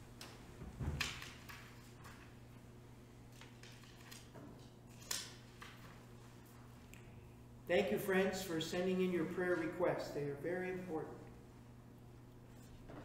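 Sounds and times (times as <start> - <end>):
paper pages rustling: 3.3 - 6.0.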